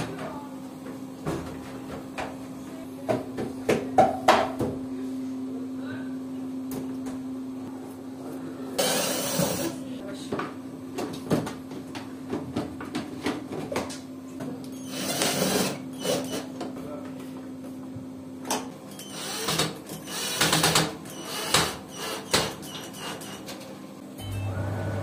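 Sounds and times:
cordless drill driving screws: 14.8 - 16.4, 19.0 - 23.4.

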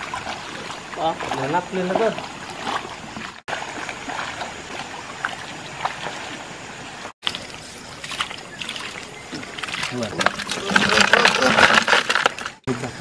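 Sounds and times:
fish thrashing in water: 7.2 - 12.6.

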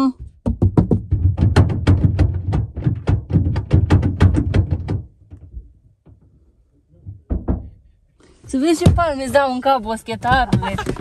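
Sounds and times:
rapid sharp knocking: 0.4 - 5.2.

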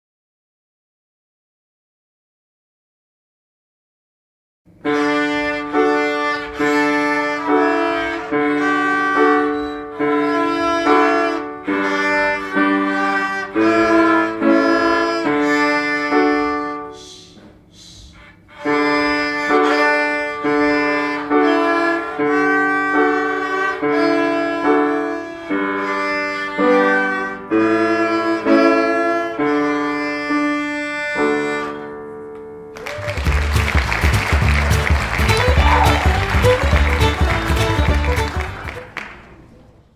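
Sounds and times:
two violins playing a tune: 4.8 - 17.0, 18.3 - 32.0, 34.6 - 38.8.

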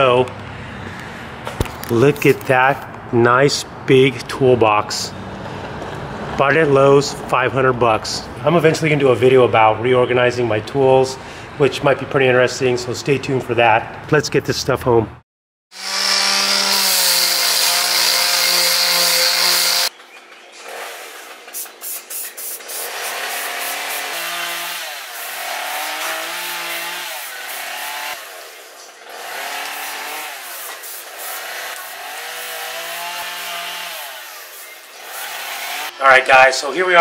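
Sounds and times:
spray can hissing: 21.5 - 24.1, 30.6 - 31.4.

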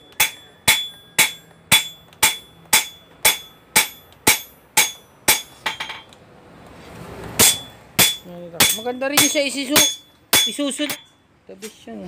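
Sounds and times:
hammer striking steel on anvil: 0.0 - 6.1, 7.4 - 11.1.

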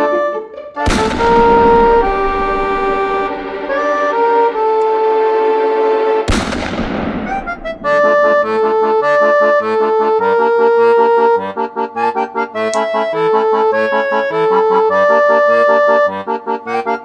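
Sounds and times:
bouncy instrumental music: 0.0 - 17.0
loud bang: 0.9 - 9.8.

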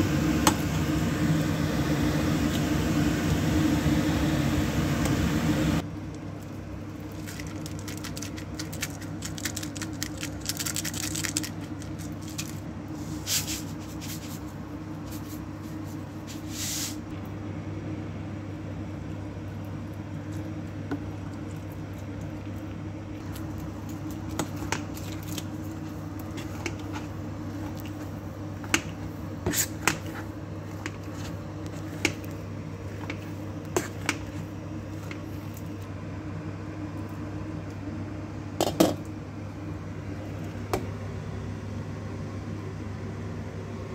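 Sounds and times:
steady low hum: 0.0 - 43.9
potato masher mashing potatoes: 23.2 - 35.2.

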